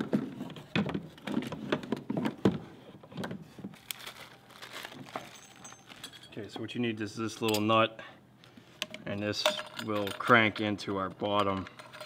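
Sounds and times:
plastic bag crinkling: 3.7 - 6.2.

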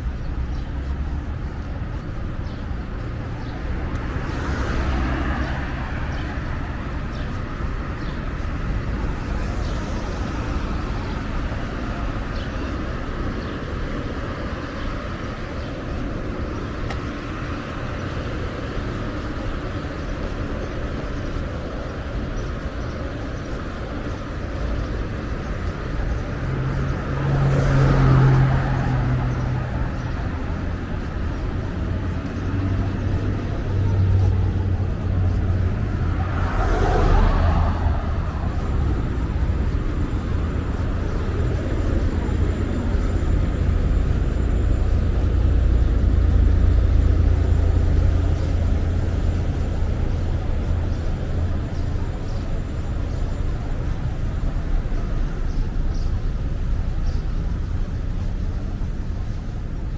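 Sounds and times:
traffic rumble: 0.0 - 59.9
vehicles passing close by: 0.0 - 59.9.

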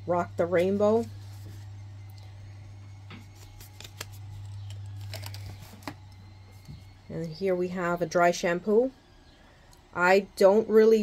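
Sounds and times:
steady low hum: 0.0 - 11.0
paper rustling: 0.8 - 1.8, 3.2 - 6.0.

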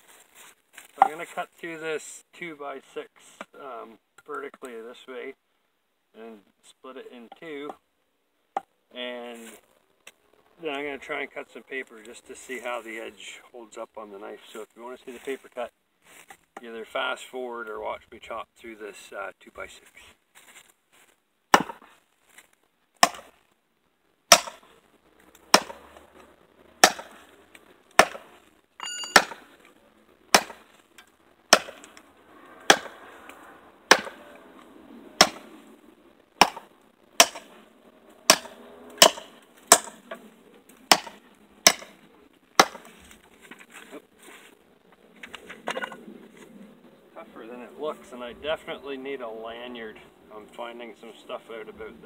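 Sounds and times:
machete chopping wood: 21.5 - 21.9, 23.0 - 23.3, 24.3 - 24.6, 25.5 - 26.0, 26.8 - 27.2, 27.9 - 28.4, 29.1 - 29.6, 30.3 - 30.7, 31.5 - 31.9, 32.7 - 33.0, 33.9 - 34.2, 35.2 - 35.5, 36.4 - 37.5, 38.3 - 40.1, 40.9 - 42.0, 42.6 - 42.9.

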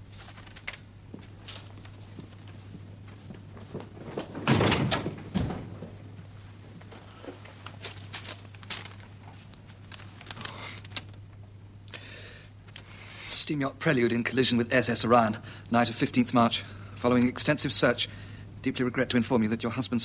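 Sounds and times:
paper rustling: 0.0 - 11.2
steady low hum: 0.0 - 20.0
door shutting with heavy thump: 4.2 - 6.2.

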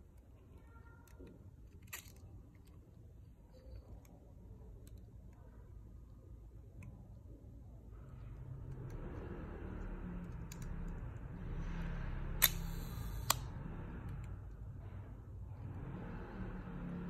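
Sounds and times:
faint handling noise: 0.0 - 7.4
low hum: 7.9 - 17.0
high buzz of timing gears: 11.3 - 14.1
camera shutter clicks: 12.4 - 13.4.

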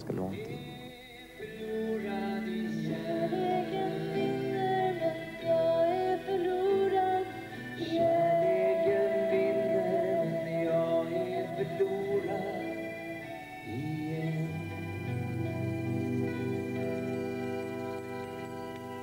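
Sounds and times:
man singing: 0.0 - 5.6, 7.8 - 15.9
piano accordion: 0.2 - 19.0.

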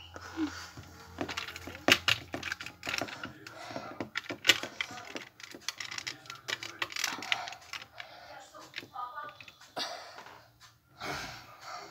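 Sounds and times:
toy clicking on wooden desk: 1.2 - 9.6.

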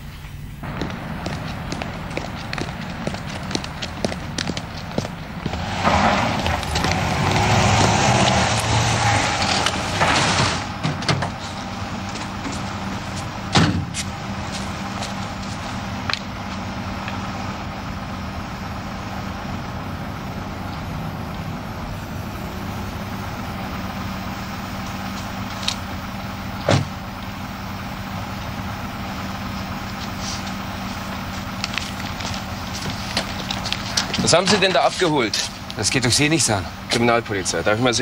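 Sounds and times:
vehicle engine idling: 0.0 - 38.0
car door slamming: 13.5 - 14.1, 26.6 - 27.0.

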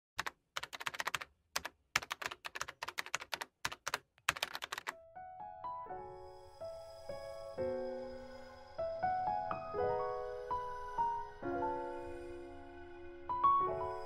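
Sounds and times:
keyboard typing clicks: 0.2 - 4.9.

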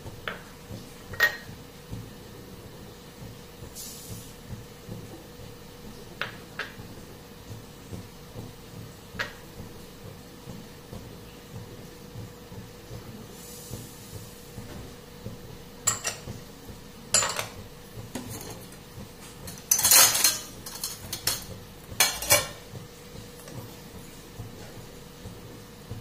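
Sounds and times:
glass bowls and utensils clinking: 15.9 - 16.3, 17.1 - 17.6, 19.5 - 22.6.

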